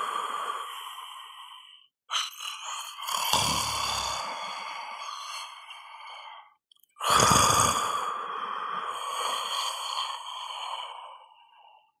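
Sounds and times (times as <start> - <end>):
person snoring: 2.1 - 5.6, 7.0 - 11.3.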